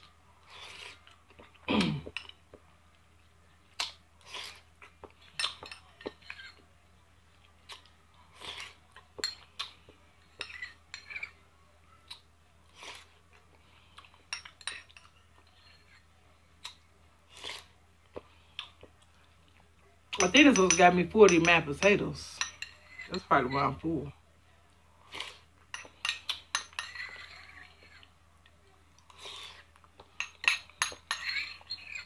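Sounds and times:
chewing and mouth smacks: 3.7s - 6.6s, 7.4s - 10.0s, 16.6s - 19.7s
spoon scraping ceramic bowl: 10.2s - 11.4s, 14.3s - 16.1s, 20.2s - 23.8s, 25.7s - 28.0s, 30.2s - 32.0s.

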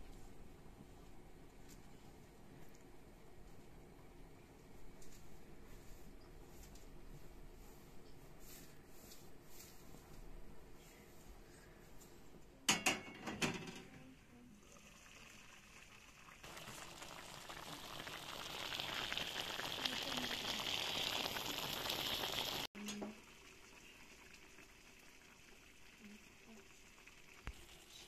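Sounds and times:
cookware clanking: 12.7s - 14.1s
sauce bubbling and sizzling in pan: 14.6s - 28.0s.

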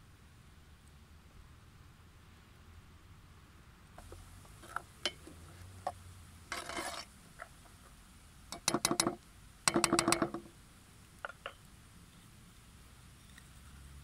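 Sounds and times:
wooden spoon scraping a metal pot: 4.0s - 7.5s.

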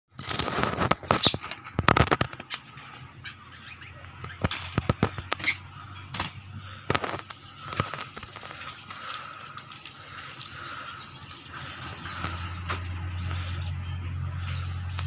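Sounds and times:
birds clattering against cage wire: 0.1s - 3.3s, 4.0s - 15.0s
short bird calls: 3.0s - 15.0s.

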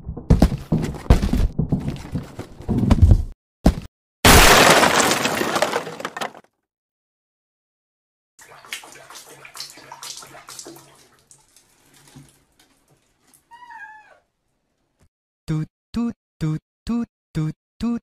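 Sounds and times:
water sloshing in a tub: 8.4s - 13.6s
cat meowing: 13.5s - 14.3s.

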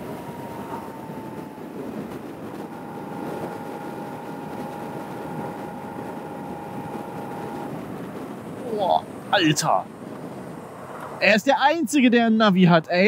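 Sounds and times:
motorcycle engine whine: 0.0s - 11.3s
wind rushing over microphone: 0.0s - 11.7s.

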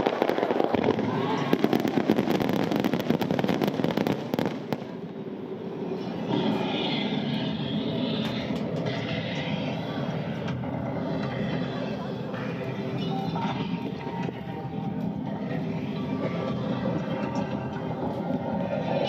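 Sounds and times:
fireworks crackling: 0.0s - 5.1s.

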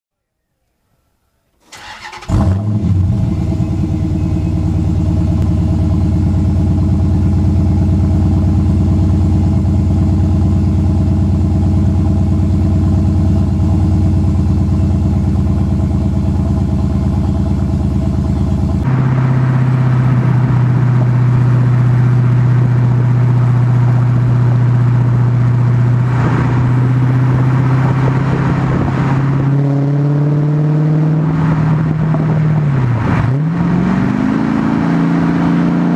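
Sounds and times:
car engine idling: 1.6s - 28.9s
car accelerating away: 1.7s - 35.9s.

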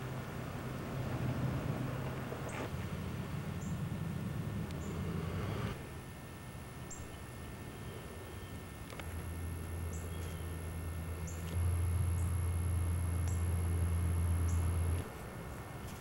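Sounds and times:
low steady hum: 0.0s - 16.0s
small bird chirping: 9.7s - 12.6s, 13.2s - 13.7s, 14.4s - 14.8s.

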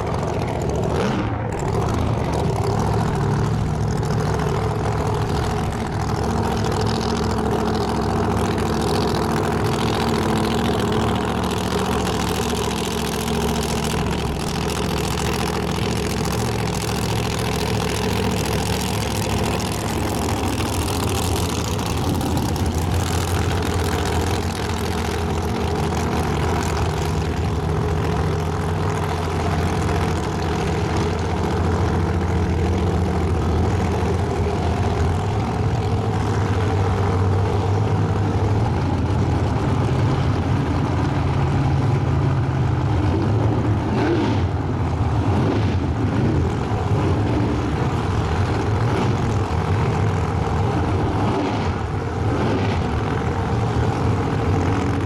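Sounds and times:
car engine idling loudly: 0.0s - 55.0s.

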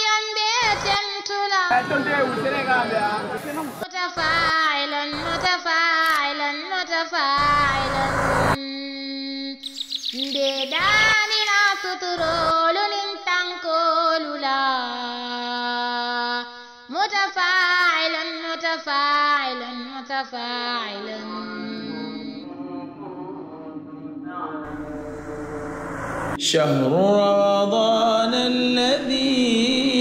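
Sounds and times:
man chanting melodically: 1.7s - 4.5s, 24.7s - 30.0s.

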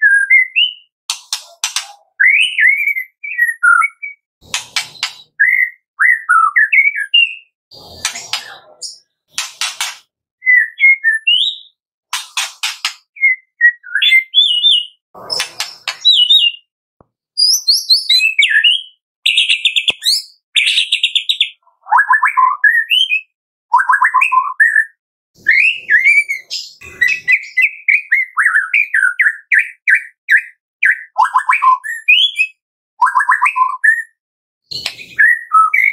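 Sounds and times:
bird singing whistled phrases: 0.0s - 0.9s, 2.0s - 4.2s, 5.0s - 7.5s, 10.4s - 11.8s, 13.1s - 16.7s, 17.4s - 35.9s
harsh rasping bird notes: 4.4s - 6.3s, 7.2s - 11.3s, 15.2s - 16.6s.

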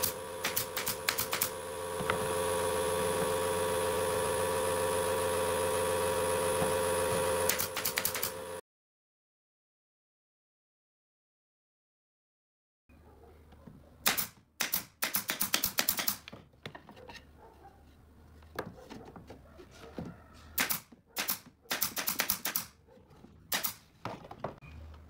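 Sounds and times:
nail gun firing into wood: 0.0s - 2.4s, 7.2s - 8.4s, 14.0s - 16.3s, 20.6s - 22.8s, 23.5s - 23.9s.

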